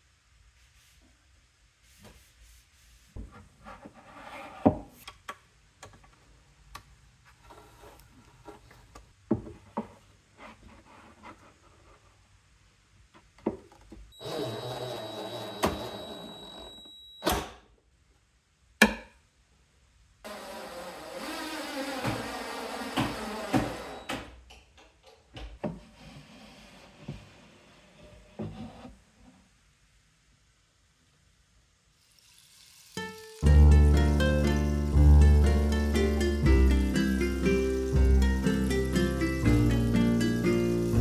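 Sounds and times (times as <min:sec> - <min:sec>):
small power tool whining: 0:14.2 - 0:16.8, 0:20.3 - 0:24.1.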